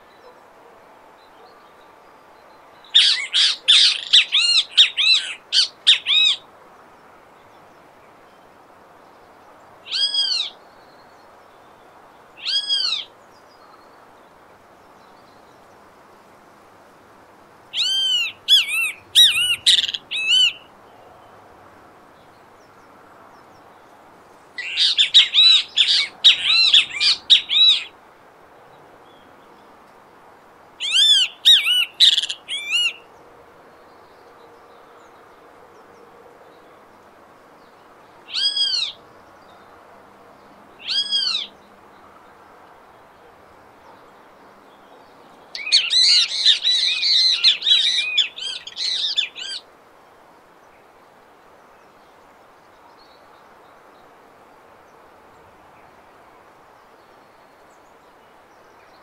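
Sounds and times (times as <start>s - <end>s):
bird calling ringing notes: 2.9s - 6.4s, 17.7s - 20.7s, 24.6s - 27.9s, 30.8s - 33.0s, 45.6s - 49.6s.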